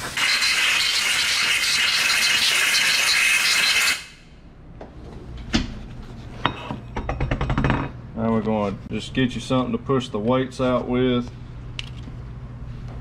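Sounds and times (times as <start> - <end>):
air blow gun hissing: 0.0 - 4.2.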